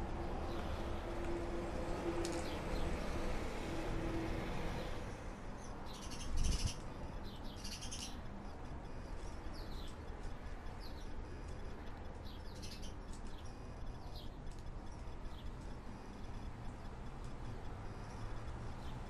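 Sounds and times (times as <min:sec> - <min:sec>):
small bird chirping: 0:05.6 - 0:08.3, 0:09.3 - 0:16.5.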